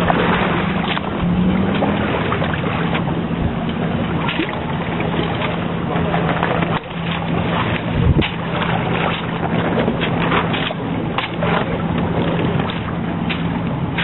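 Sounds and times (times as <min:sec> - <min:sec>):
low hum: 0:00.0 - 0:14.0
wind and water along hull: 0:00.0 - 0:14.0
short rustles and slaps: 0:12.6 - 0:14.0.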